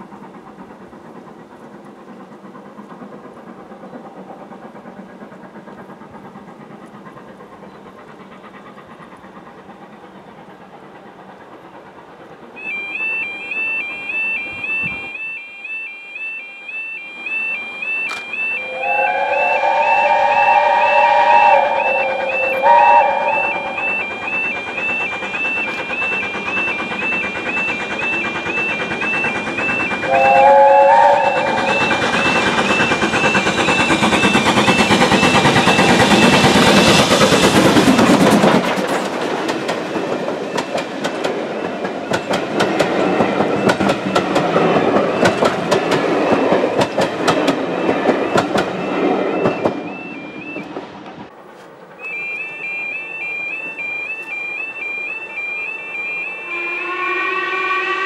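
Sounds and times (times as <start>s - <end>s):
train wheels clicking over rail joints: 0.0s - 57.0s
steam locomotive exhaust beats: 0.0s - 58.0s
steam locomotive whistle: 12.5s - 38.6s, 52.0s - 58.0s.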